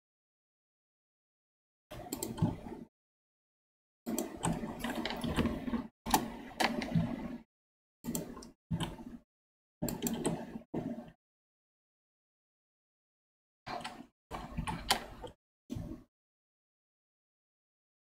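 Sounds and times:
keyboard and mouse clicks: 1.9 - 2.8, 4.1 - 7.4, 8.0 - 9.2, 9.8 - 11.2, 13.7 - 16.0.

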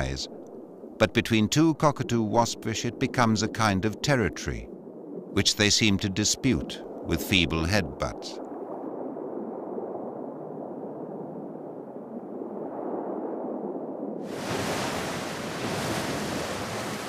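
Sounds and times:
muffled water wash: 0.0 - 17.0
ocean surf breaking: 14.2 - 17.0.

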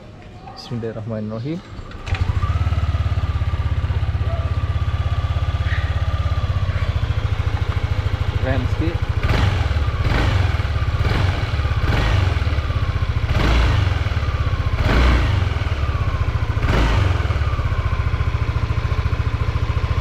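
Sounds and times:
scooter engine revving: 1.7 - 20.0.

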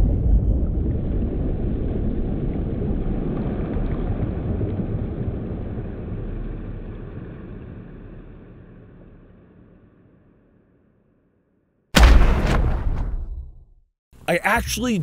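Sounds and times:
slowed-down shotgun blast: 12.0 - 13.6.

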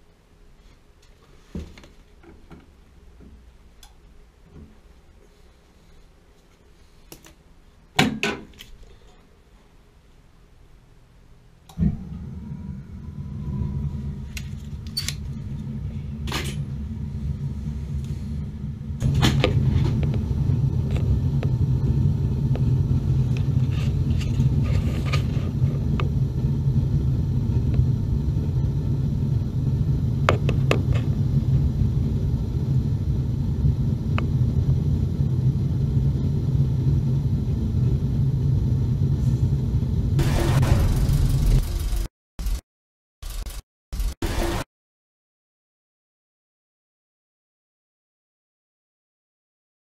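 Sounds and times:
gas burner rumbling: 11.6 - 42.6.

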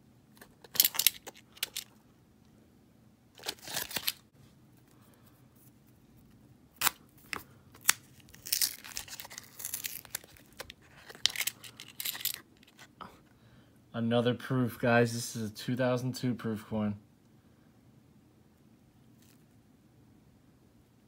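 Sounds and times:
paper wrapper tearing and crinkling: 3.4 - 4.2, 6.8 - 11.7.

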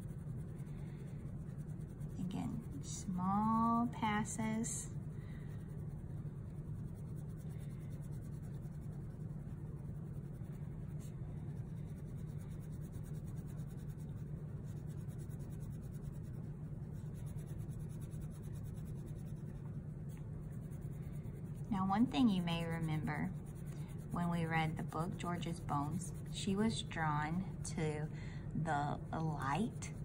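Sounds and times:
crayon scratching on paper: 0.0 - 27.9, 28.6 - 30.0.

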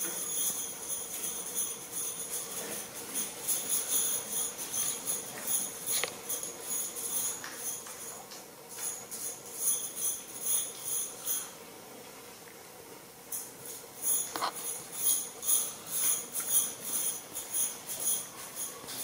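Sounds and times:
small bells jingling: 0.0 - 11.6, 13.3 - 19.0.

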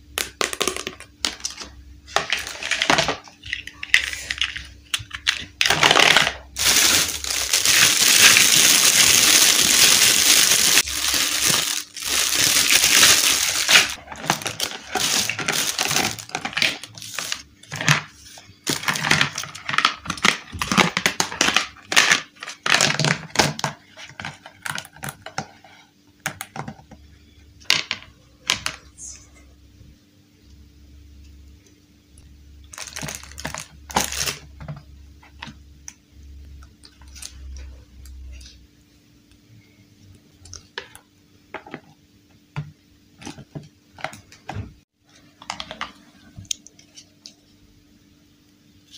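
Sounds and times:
plastic toy blocks clattering: 0.4 - 18.1, 18.7 - 25.4.

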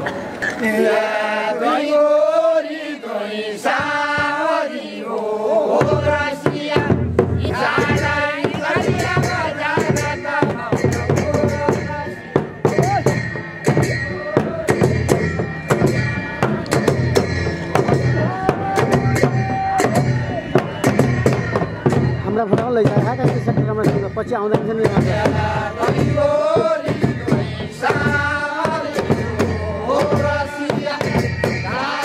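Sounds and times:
men singing together: 0.4 - 13.2, 17.3 - 22.4, 24.5 - 32.0
fast drumming: 5.8 - 32.0.

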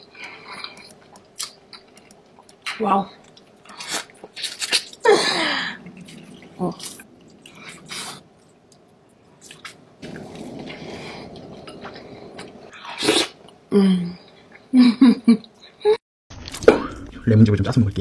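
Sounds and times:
person chewing meat: 0.0 - 5.0.

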